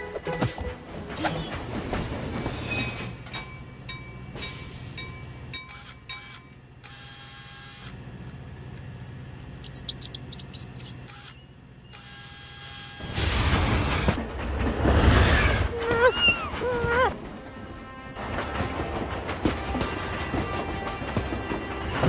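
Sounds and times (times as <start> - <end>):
train track clicks: 0.0 - 12.2, 16.0 - 22.0.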